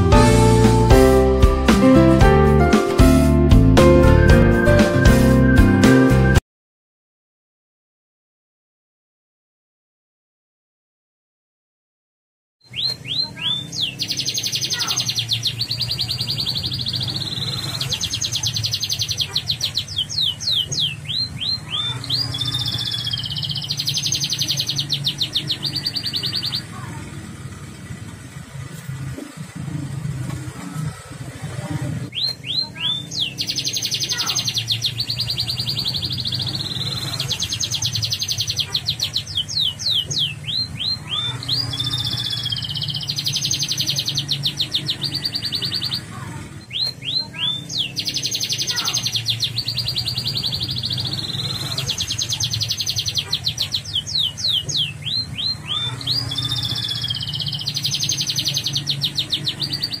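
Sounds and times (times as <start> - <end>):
canary singing trills: 12.6 - 26.8, 32.1 - 60.0.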